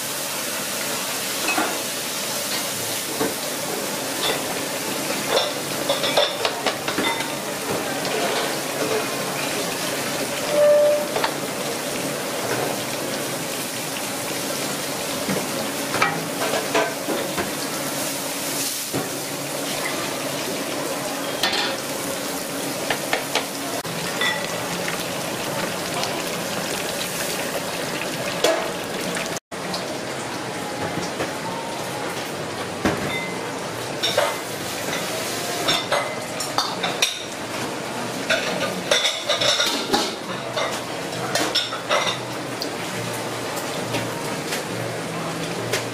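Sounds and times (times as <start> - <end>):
water boiling hard: 0.0 - 30.5.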